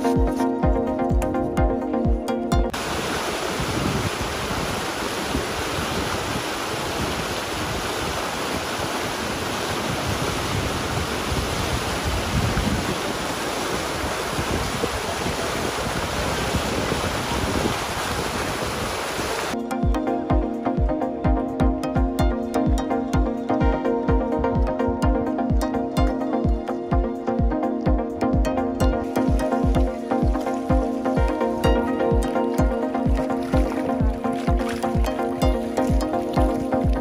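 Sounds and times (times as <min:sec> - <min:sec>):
electronic music: 0:00.0 - 0:02.8, 0:19.6 - 0:37.0
creek rushing over rocks: 0:02.7 - 0:19.6, 0:28.8 - 0:37.0.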